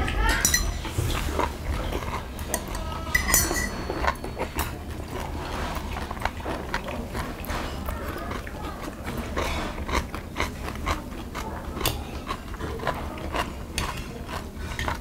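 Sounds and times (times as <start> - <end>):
metal chopsticks clinking on plates: 0.2 - 0.9, 2.5 - 4.8.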